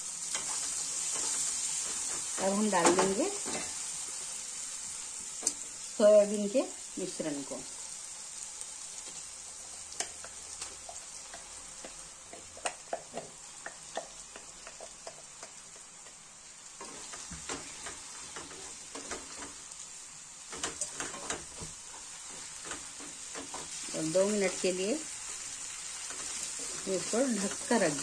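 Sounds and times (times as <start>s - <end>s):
frying hiss: 0.0s - 28.0s
spoon scraping and tapping pan: 9.9s - 16.2s, 20.5s - 23.8s.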